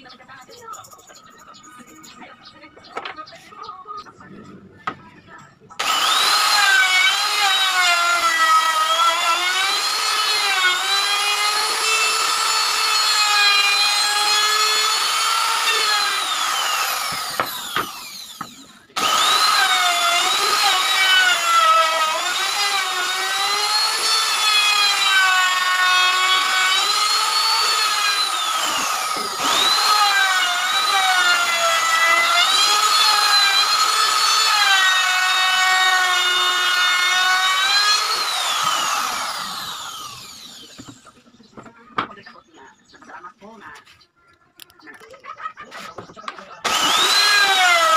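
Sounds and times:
router motor winding down: 5.8s - 41.0s, 46.6s - 47.9s
trim router cutting wood: 5.8s - 41.2s, 46.6s - 47.9s.

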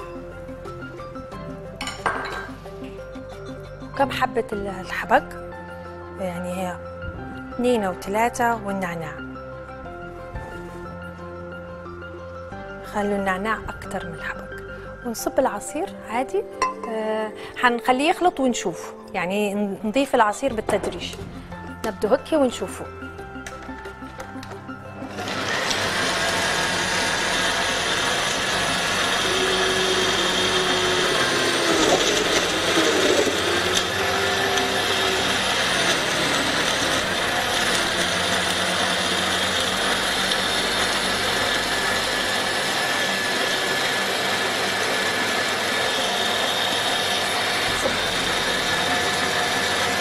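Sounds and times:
blender running: 25.0s - 50.0s.

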